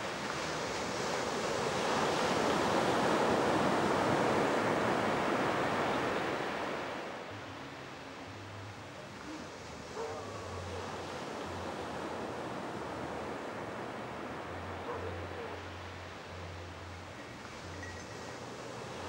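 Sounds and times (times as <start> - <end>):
waves breaking on beach: 0.0 - 8.4.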